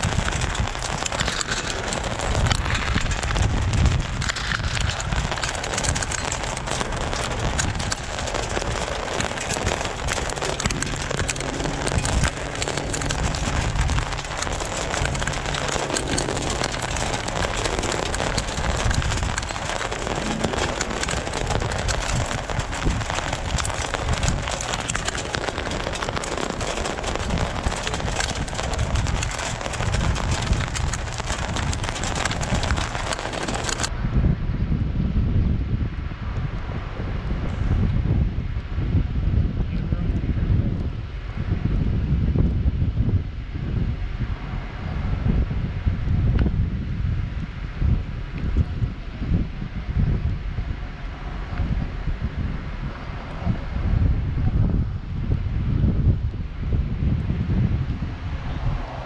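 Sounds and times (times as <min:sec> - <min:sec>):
tyres crackling on gravel: 0:00.0 - 0:33.9
low engine hum: 0:00.0 - 0:34.0.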